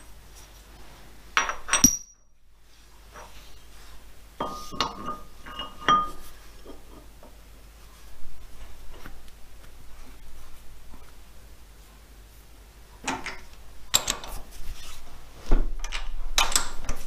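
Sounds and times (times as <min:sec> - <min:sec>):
metal-on-metal clinks and knocks: 0:01.4 - 0:02.3, 0:04.4 - 0:07.0, 0:13.1 - 0:14.5, 0:15.8 - 0:17.0.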